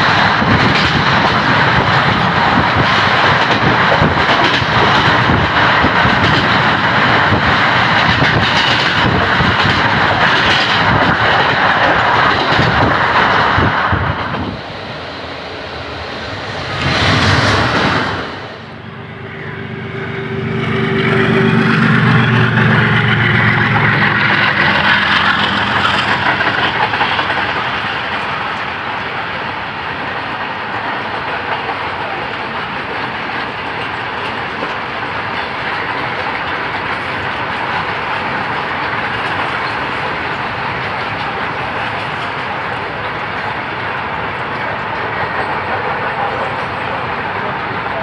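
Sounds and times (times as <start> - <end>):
diesel locomotive passing: 0.0 - 48.0
train rumble and clatter: 0.0 - 48.0
low steady drone: 18.4 - 24.8.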